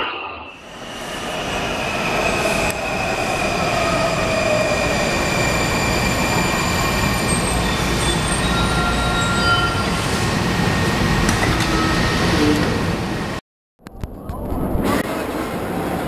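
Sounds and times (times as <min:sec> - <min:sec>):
subway train rumbling: 0:00.0 - 0:13.4, 0:14.2 - 0:16.0
high squealing of wheels and brakes: 0:00.5 - 0:10.2.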